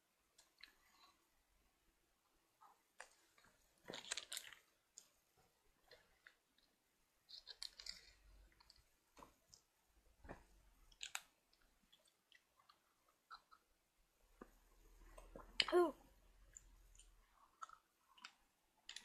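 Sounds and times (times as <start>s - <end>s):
soft clicks and crackles: 0.2s - 1.2s, 2.2s - 19.0s
plastic packet crinkling: 3.9s - 4.6s.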